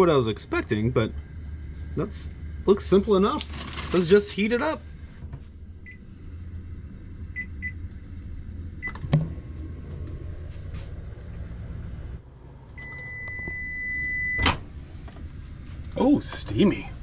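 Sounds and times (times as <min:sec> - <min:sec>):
microwave humming: 0:00.0 - 0:17.0
long steady beep: 0:05.8 - 0:06.1, 0:07.3 - 0:07.8, 0:12.8 - 0:14.5
microwave keypad beeps: 0:12.8 - 0:14.5.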